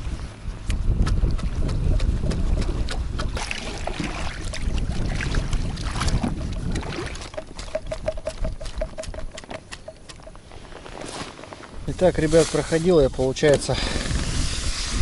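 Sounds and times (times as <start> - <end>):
water splashing around boat: 0.0 - 11.0
wind rumbling on microphone: 0.0 - 11.0, 11.7 - 15.0
oars and gear knocking: 5.4 - 10.6.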